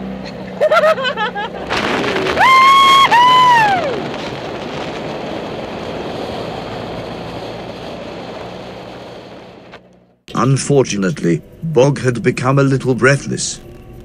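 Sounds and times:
driving noise: 0.0s - 14.0s
wind rushing: 1.7s - 9.8s
person whooping: 2.4s - 4.0s.

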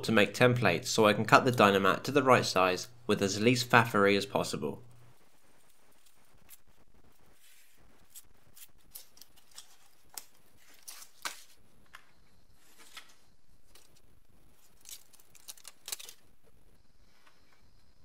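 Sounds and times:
paper crinkling: 5.2s - 16.3s
scissors snipping paper: 8.0s - 11.5s, 14.6s - 16.2s.

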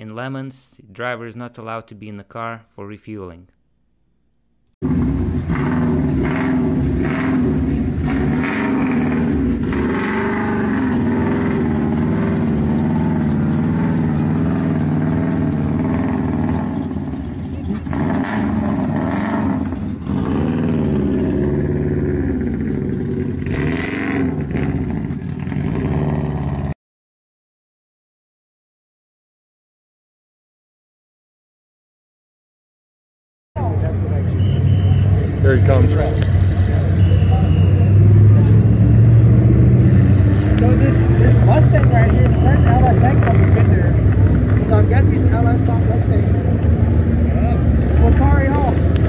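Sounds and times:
car engine running at low revs: 4.8s - 26.8s, 33.6s - 49.0s.

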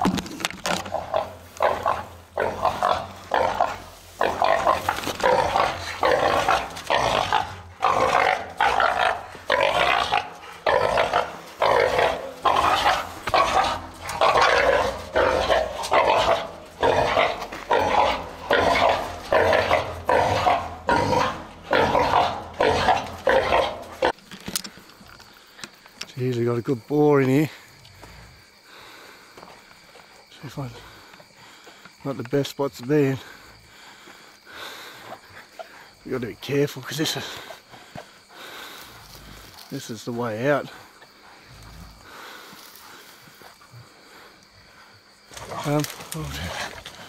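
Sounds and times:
boar calling loudly: 0.8s - 24.2s.

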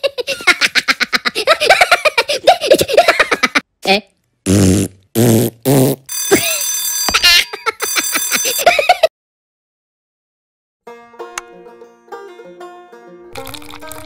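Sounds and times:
alarm clock bell ringing: 6.1s - 9.1s.

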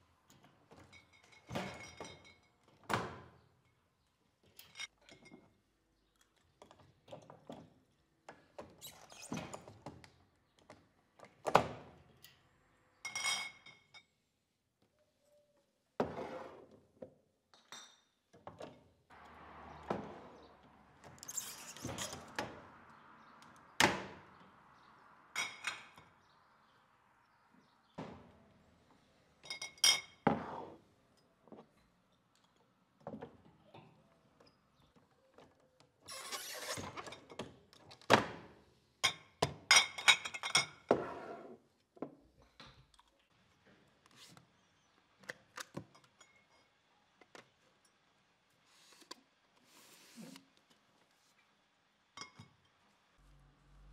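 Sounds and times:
glass bottles clinking: 0.7s - 2.7s, 25.4s - 26.1s, 29.4s - 30.2s, 39.8s - 40.9s.

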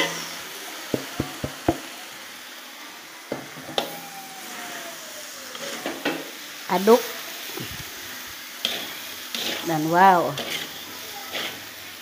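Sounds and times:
stems sizzling in a wok: 0.0s - 12.0s
spatula knocking against wok: 1.0s - 1.8s.

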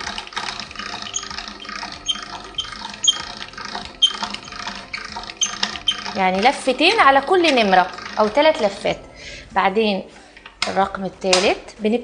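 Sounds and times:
pasta roller gears clicking: 0.0s - 9.0s.

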